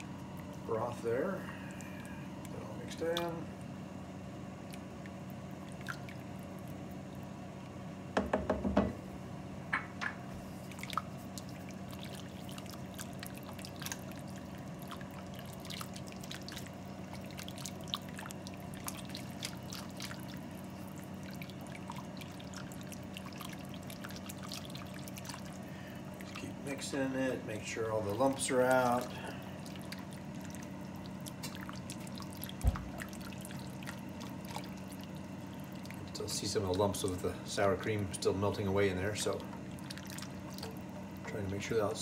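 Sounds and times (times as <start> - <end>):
steady low hum: 0.0 - 42.0
liquid sloshing: 4.6 - 7.3, 10.5 - 42.0
whisk stirring liquid in pan: 10.6 - 27.1.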